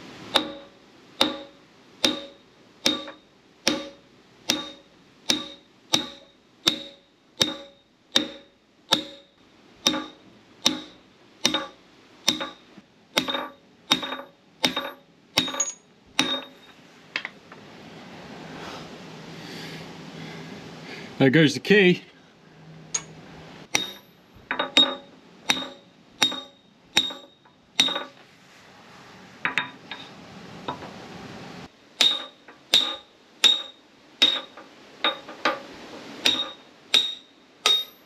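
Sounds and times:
hammer blows on metal shaft: 0.3s - 16.6s.

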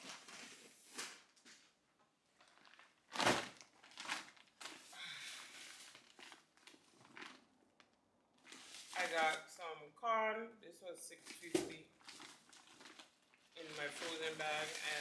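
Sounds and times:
plastic bags rustling: 2.3s - 7.8s, 8.4s - 9.4s, 11.2s - 15.0s.

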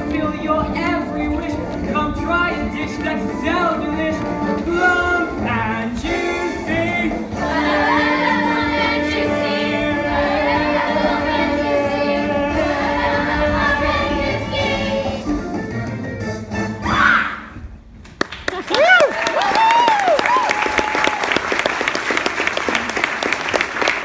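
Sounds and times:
chorus singing over music: 4.1s - 15.4s.

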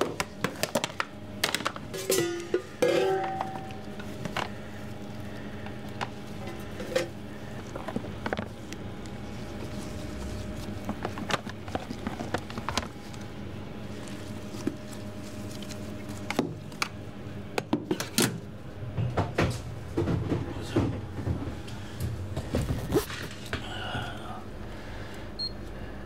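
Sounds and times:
things being handled: 0.0s - 13.3s
steady mechanical hum: 0.0s - 26.0s.

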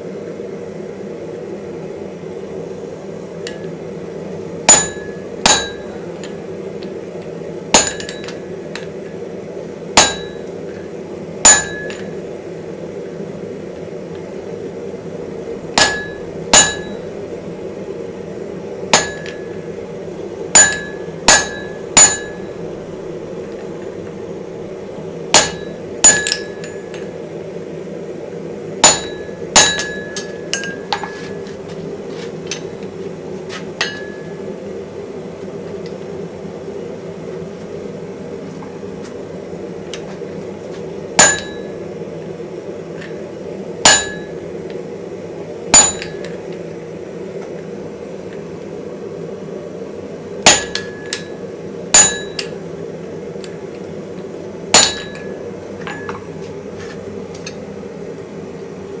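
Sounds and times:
hammer striking steel on anvil: 4.7s - 6.4s, 7.8s - 8.4s, 10.0s - 10.5s, 11.4s - 12.1s, 15.7s - 17.1s, 18.9s - 19.6s, 20.5s - 24.1s, 25.3s - 27.1s, 28.8s - 31.2s, 33.8s - 34.3s, 41.2s - 41.8s, 43.8s - 44.4s, 45.7s - 46.4s, 50.4s - 52.6s, 54.7s - 56.2s.

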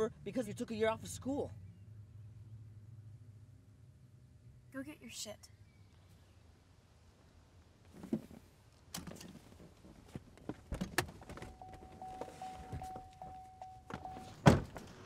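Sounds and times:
car door opening: 10.6s - 15.0s
door-open warning chime: 11.4s - 14.9s.

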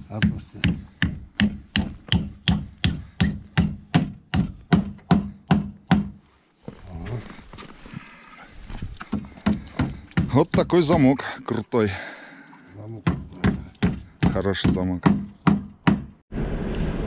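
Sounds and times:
rapid hard knocks: 0.2s - 6.2s, 13.0s - 16.2s
quiet rustling: 6.2s - 9.1s.

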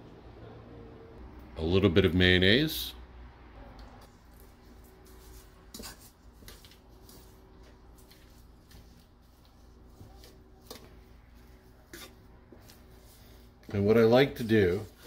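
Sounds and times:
fork scraping metal bowl: 11.6s - 12.9s.

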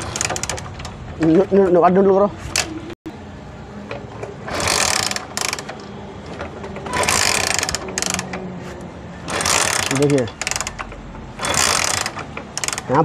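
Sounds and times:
motorcycle engine kick-start cranking: 0.0s - 1.6s, 3.9s - 8.4s, 9.3s - 13.0s.

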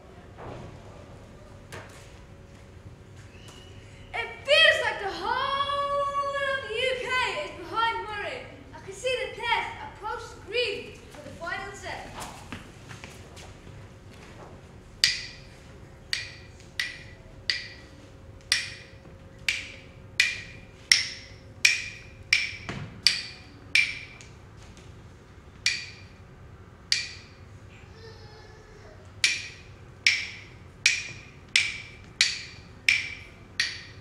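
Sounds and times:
wood block knocks: 18.5s - 24.2s, 29.2s - 34.0s.

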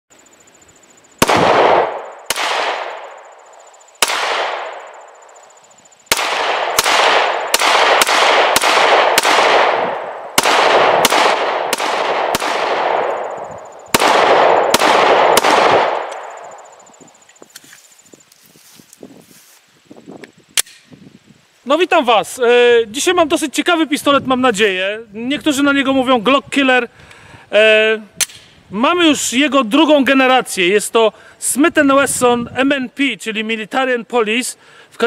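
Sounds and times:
pistol shots echoing: 1.2s - 3.3s, 4.0s - 5.3s, 6.1s - 16.6s.

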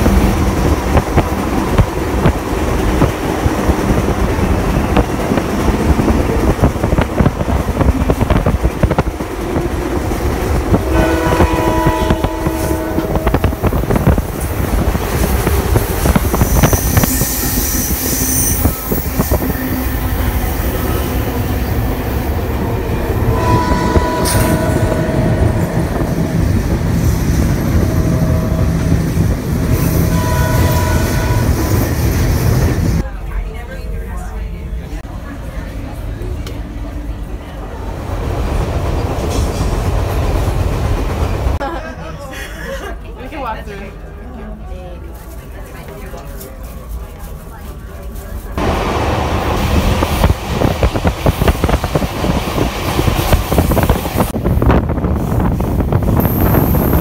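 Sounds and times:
train wheels rumbling on rail: 0.0s - 42.0s, 42.6s - 57.0s
train horn: 10.8s - 14.1s, 23.2s - 26.7s, 29.8s - 31.8s.

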